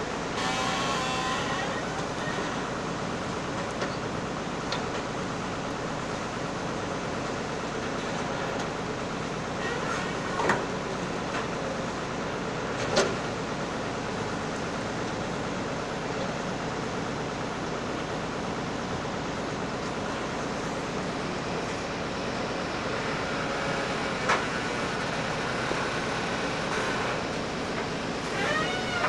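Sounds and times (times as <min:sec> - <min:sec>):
diesel engine running: 0:00.0 - 0:29.0.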